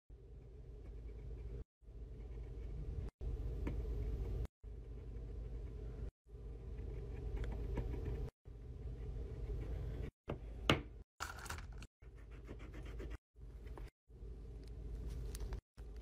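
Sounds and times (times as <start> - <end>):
low steady hum: 11.6 - 16.0.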